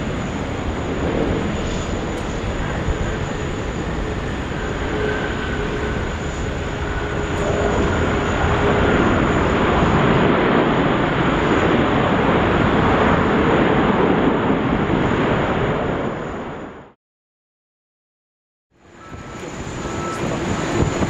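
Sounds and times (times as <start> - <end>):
broad jet noise: 0.0 - 17.0, 18.7 - 21.0
faint jet engine whine: 0.0 - 17.0, 18.8 - 21.0.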